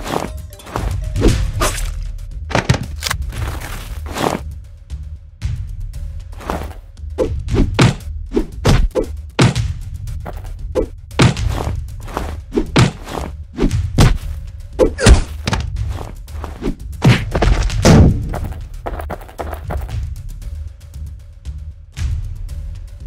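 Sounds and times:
background music: 0.0 - 23.0
punch and hit thuds: 7.5 - 10.4, 11.2 - 15.7, 17.0 - 18.5.

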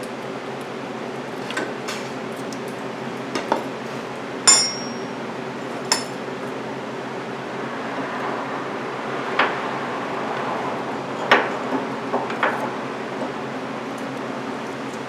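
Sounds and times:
steady low hum: 4.2 - 6.3
metallic clinks of hand tools: 4.5 - 5.1.

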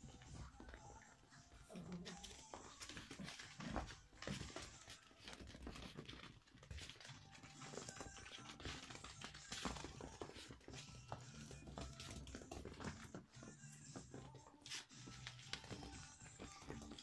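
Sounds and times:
puppy paws scratching and tapping: 0.0 - 17.0.

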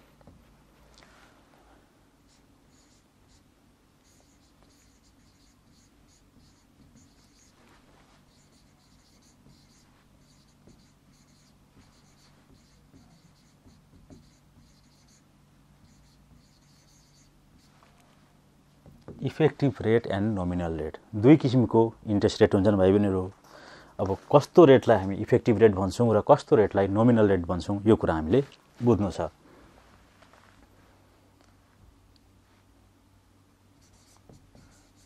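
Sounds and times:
low steady hum: 0.0 - 35.0
pen scratching on board: 4.0 - 7.6, 8.3 - 15.2, 15.8 - 17.7, 33.8 - 35.0.

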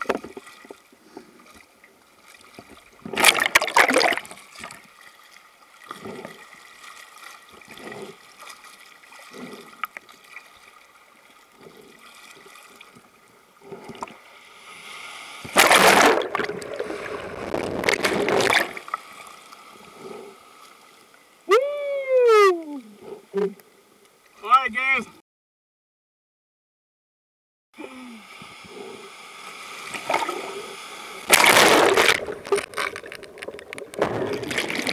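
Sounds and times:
water sloshing and splashing: 0.0 - 21.3, 29.6 - 34.9
underwater bubbling: 15.4 - 21.1, 28.4 - 34.9
loud rushing underwater splash: 15.5 - 18.9, 31.3 - 32.8, 33.9 - 34.9.

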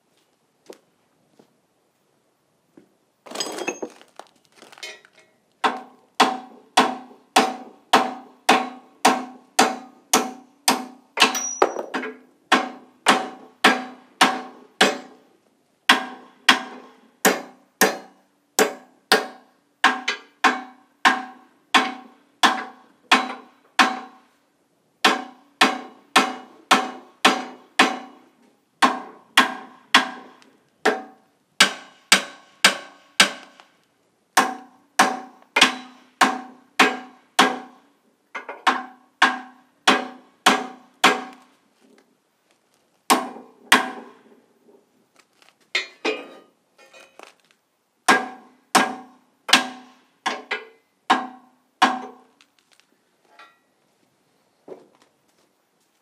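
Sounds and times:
metal clatter: 3.3 - 5.3.

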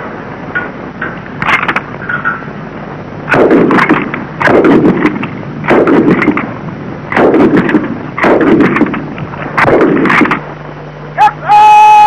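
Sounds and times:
machine gun automatic bursts: 3.3 - 6.5, 7.1 - 9.0.

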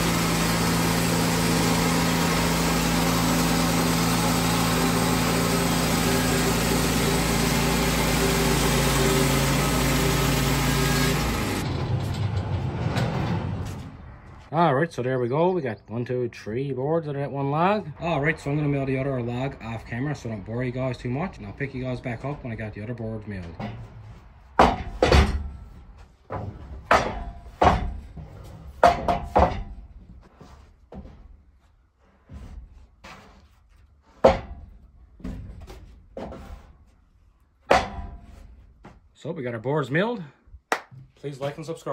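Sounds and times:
bandsaw mill petrol engine running: 0.0 - 14.4
knocks: 24.6 - 25.7, 26.3 - 28.2, 28.8 - 29.9.

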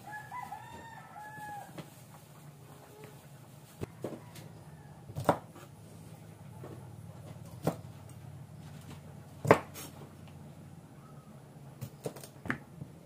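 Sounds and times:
cleaver chopping on wooden board: 5.1 - 5.7, 9.4 - 9.8.

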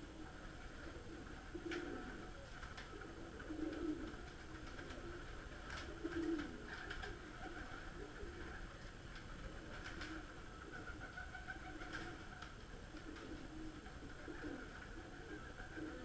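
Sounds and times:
pigeons cooing: 0.0 - 16.0
wing flutters: 0.0 - 16.0.

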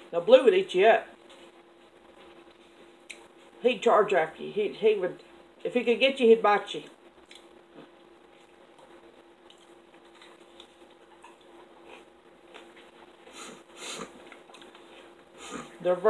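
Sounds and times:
faint steady hum: 0.0 - 16.0
lip smacks: 7.2 - 12.9
person chewing: 7.2 - 15.8.

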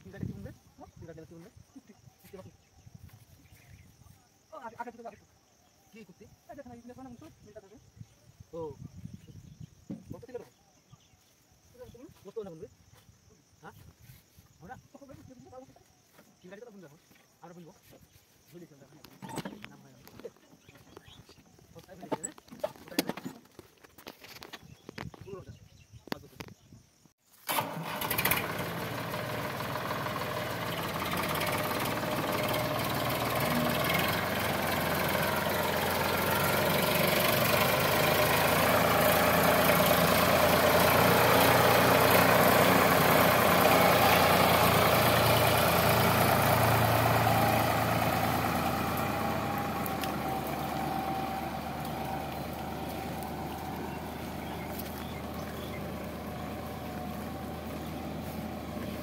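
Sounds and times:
tractor diesel engine running: 27.5 - 59.0.

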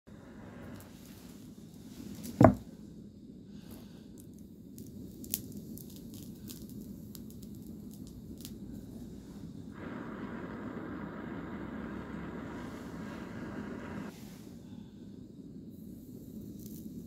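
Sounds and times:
low background rumble: 0.1 - 17.0
heavy thump: 2.4 - 2.6.

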